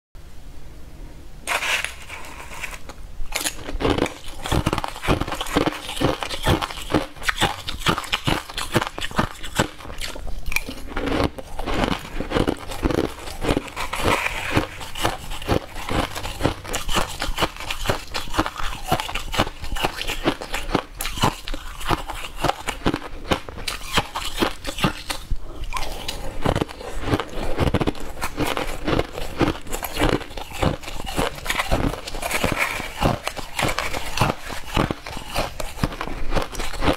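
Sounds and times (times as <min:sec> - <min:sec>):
spoon scooping ice: 0:01.5 - 0:22.9
crushed ice crunching: 0:01.5 - 0:36.9.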